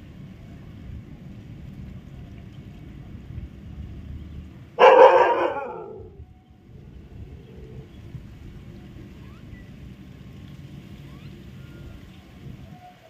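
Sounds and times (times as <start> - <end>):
dog barking: 4.8 - 6.2.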